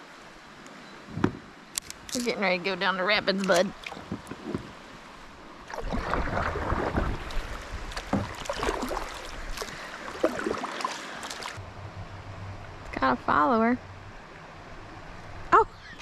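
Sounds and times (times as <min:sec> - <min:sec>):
rushing splashing water: 0:02.2 - 0:11.6.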